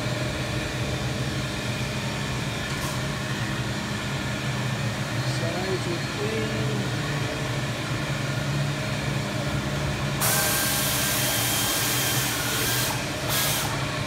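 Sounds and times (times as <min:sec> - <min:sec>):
steady low hum: 0:00.0 - 0:14.0
hiss of air: 0:10.2 - 0:13.8.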